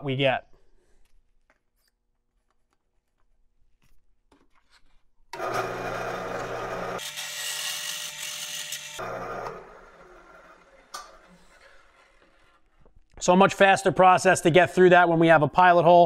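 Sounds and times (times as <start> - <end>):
drill press cutting steel: 5.4 - 12.4.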